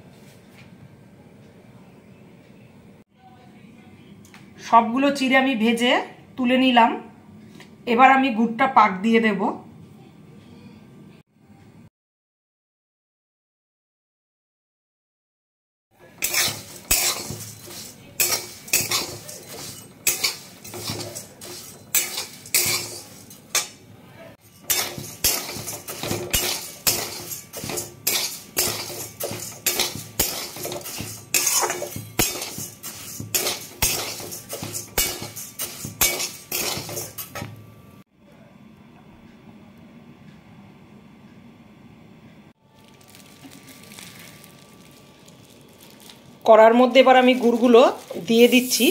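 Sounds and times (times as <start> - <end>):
spatula scraping rice flakes in pan: 16.2 - 23.8, 24.4 - 37.4.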